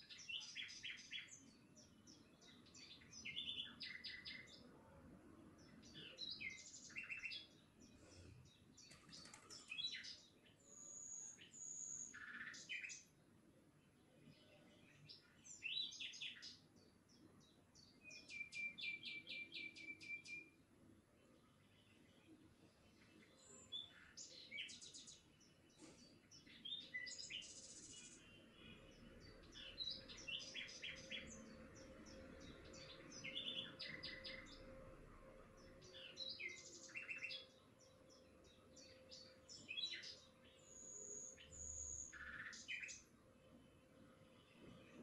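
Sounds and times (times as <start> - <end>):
birds chirping: 5.6 - 13.2, 21.2 - 34.8.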